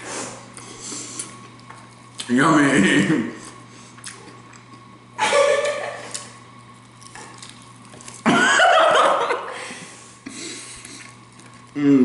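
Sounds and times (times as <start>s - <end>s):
faint chewing: 6.0s - 8.3s, 10.3s - 11.8s.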